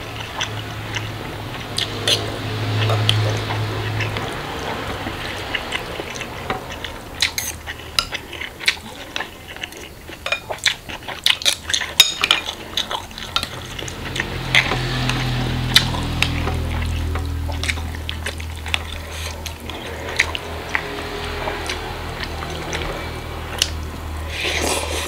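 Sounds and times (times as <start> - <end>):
cutlery clinking on glass bowl: 7.3 - 8.2, 11.8 - 12.6.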